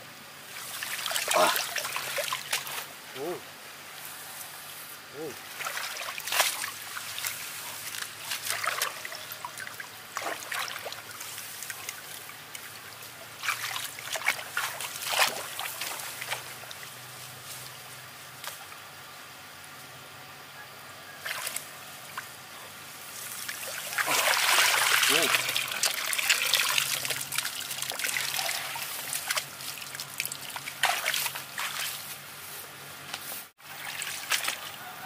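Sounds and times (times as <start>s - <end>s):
water splashing and sloshing: 0.4s - 3.0s, 5.4s - 17.8s, 21.2s - 32.3s, 33.5s - 35.0s.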